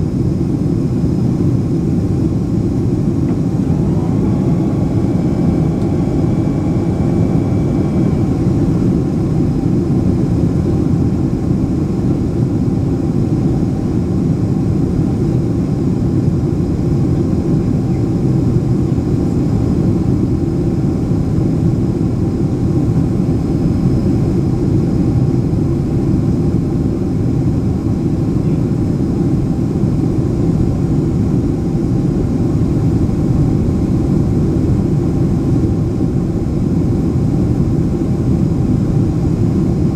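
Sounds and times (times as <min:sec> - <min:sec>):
jet engines rumbling: 0:00.0 - 0:39.9
rushing air: 0:02.6 - 0:10.4.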